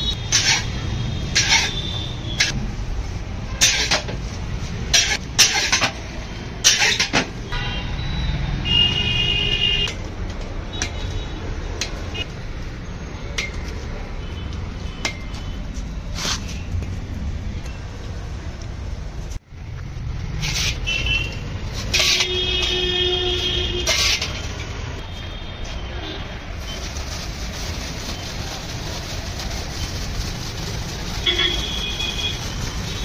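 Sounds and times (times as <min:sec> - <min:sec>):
street traffic rumble: 0:00.0 - 0:33.0
metal ladle scraping iron wok: 0:00.1 - 0:02.5, 0:03.6 - 0:04.2, 0:04.8 - 0:07.3, 0:20.4 - 0:22.9, 0:23.7 - 0:24.6.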